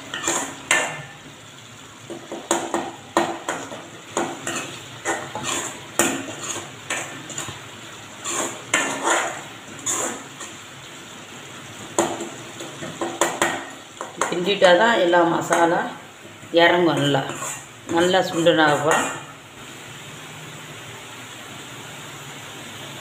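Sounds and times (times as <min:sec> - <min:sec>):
metal ladle scraping a metal pot: 0:00.1 - 0:00.9, 0:04.4 - 0:07.6, 0:08.2 - 0:10.6, 0:17.2 - 0:19.2.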